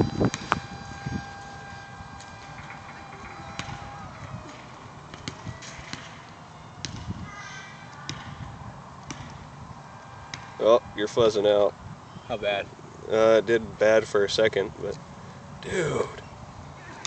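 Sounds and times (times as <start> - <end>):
electric motor whine: 0.0 - 4.9.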